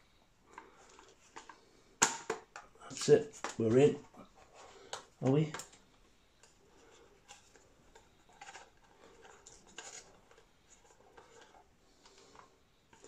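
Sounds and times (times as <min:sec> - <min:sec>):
plastic case scrapes and clicks: 0:07.2 - 0:13.0.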